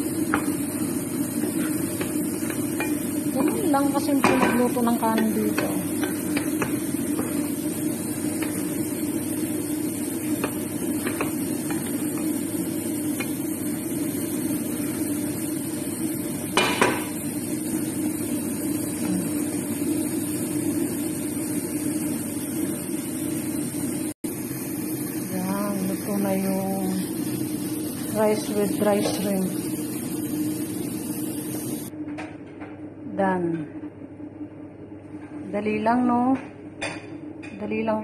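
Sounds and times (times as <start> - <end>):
steady hum: 0.0 - 38.0
utensil scraping cooking pot: 0.3 - 13.4.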